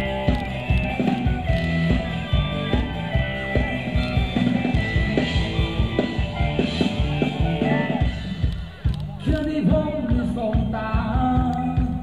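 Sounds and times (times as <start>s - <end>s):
live band dance music: 0.0s - 12.0s
steady drum beat: 0.0s - 12.0s.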